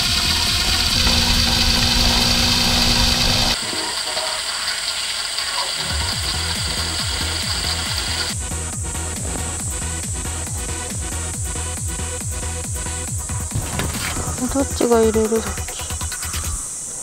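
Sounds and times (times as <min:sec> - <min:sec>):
drill motor whir: 0:00.0 - 0:08.4
electronic background music: 0:00.0 - 0:16.7.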